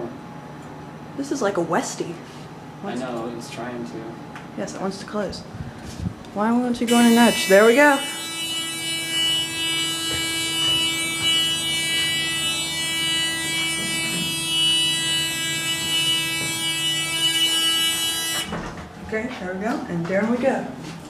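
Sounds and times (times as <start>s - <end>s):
elevator buzzer steady tone: 6.8s - 18.8s.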